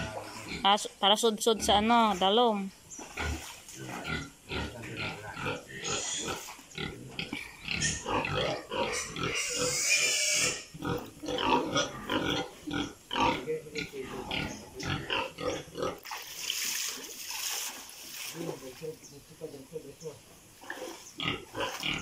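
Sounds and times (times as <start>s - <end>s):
pigs grunting and squealing: 0.0s - 0.8s, 3.0s - 16.2s, 20.6s - 22.0s.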